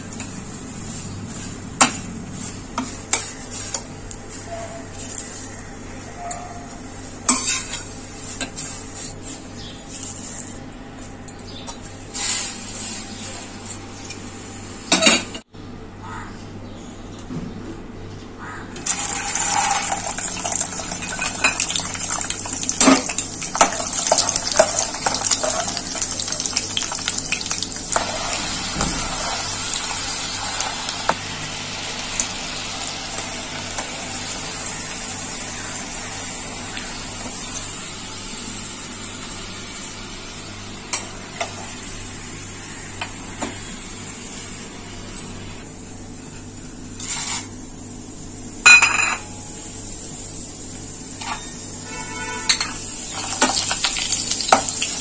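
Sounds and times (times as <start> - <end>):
nuts sizzling in hot oil: 18.8 - 44.7, 49.6 - 55.0.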